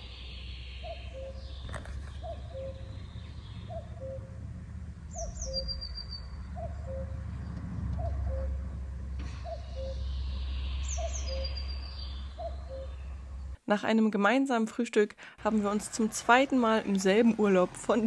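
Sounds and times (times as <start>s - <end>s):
small bird chirps: 0.0s - 4.4s, 5.0s - 8.6s, 9.3s - 13.2s
cuckoo calling: 0.0s - 4.5s, 5.1s - 7.3s, 8.0s - 13.2s
steady low rumble: 0.0s - 13.6s.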